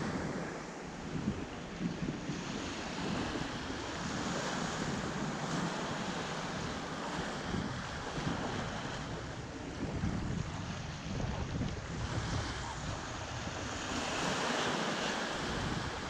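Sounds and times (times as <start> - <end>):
small waves lapping on beach: 0.0 - 16.0
wind buffeting microphone: 0.0 - 16.0.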